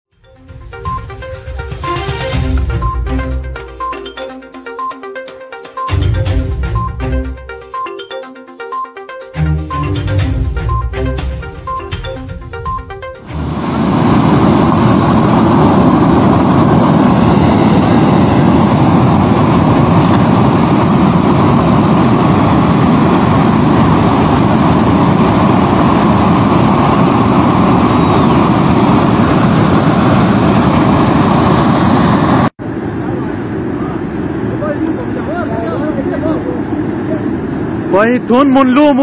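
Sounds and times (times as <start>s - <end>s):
flood torrent rushing: 13.2s - 39.0s.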